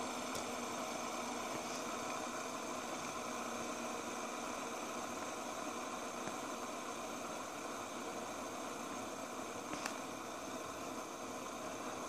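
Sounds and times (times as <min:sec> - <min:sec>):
fidget spinner whirring: 0:00.0 - 0:12.0.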